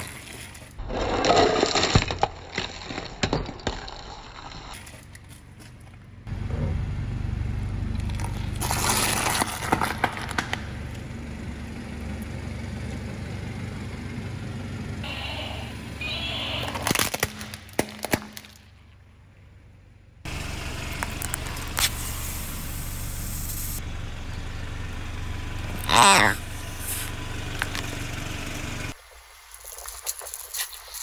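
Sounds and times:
low car engine rumble: 5.0 - 17.3, 18.6 - 29.0.

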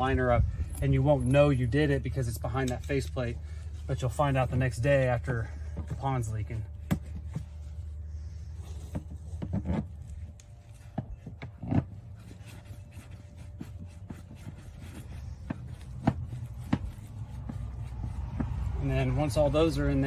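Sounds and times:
steady low rumble: 0.0 - 20.0
rubber liner rubbing: 6.9 - 19.1.

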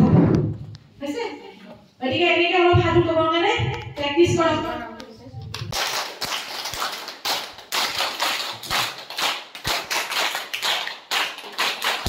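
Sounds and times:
crowd applauding: 5.6 - 12.0.

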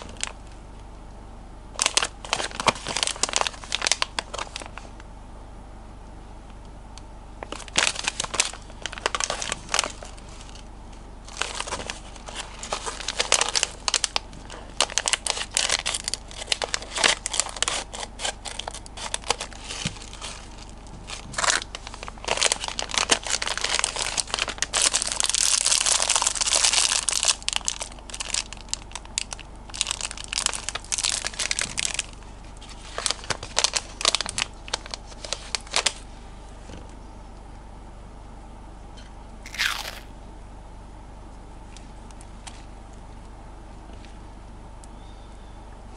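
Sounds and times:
plastic packaging crinkling: 1.8 - 4.8, 7.5 - 10.6, 11.3 - 32.0, 39.5 - 40.1.

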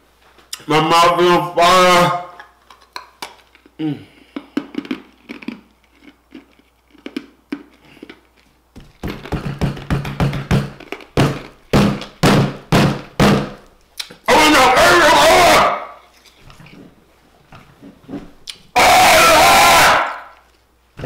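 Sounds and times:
thumps: 8.8 - 13.6
man crying out and huffing: 14.4 - 15.8, 18.8 - 20.1.

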